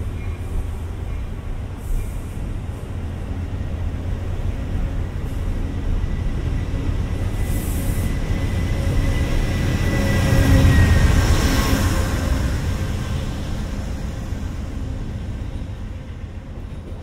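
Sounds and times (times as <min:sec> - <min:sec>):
diesel locomotive: 0:00.0 - 0:17.0
train coaches rolling rumble: 0:00.0 - 0:17.0.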